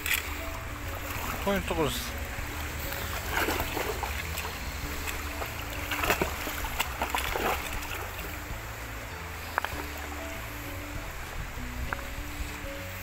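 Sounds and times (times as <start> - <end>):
net sloshing through water: 0.0 - 8.5
flowing stream water: 0.0 - 13.0.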